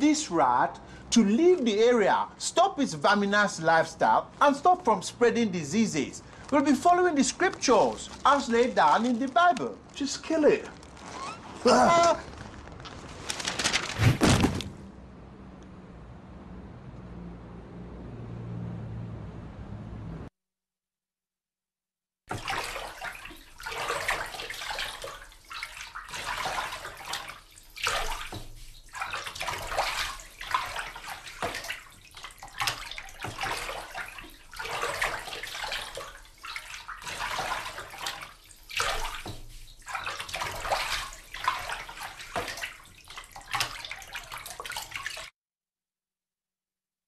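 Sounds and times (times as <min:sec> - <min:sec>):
rushing sloshing water: 0:00.3 - 0:14.5, 0:22.3 - 0:45.3.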